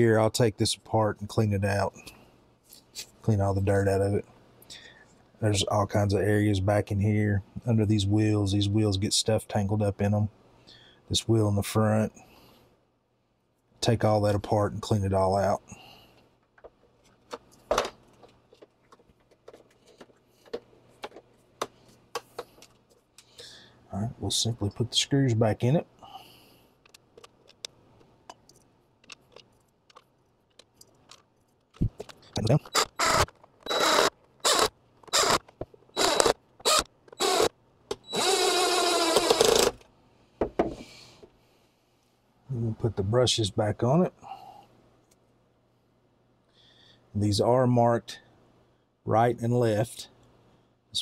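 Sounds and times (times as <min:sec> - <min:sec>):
faint steady hum: 0:00.0 - 0:51.0
cordless driver driving screws: 0:32.6 - 0:39.9.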